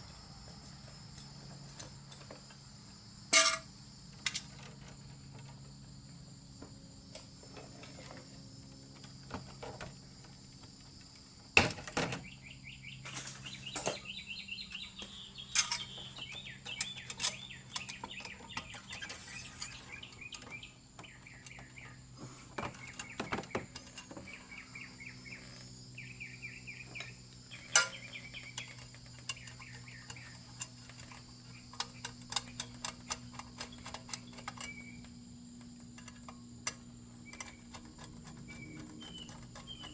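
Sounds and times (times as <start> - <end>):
steady low hum: 0.0 - 39.9
bird chirping: 12.2 - 35.1, 37.2 - 39.9.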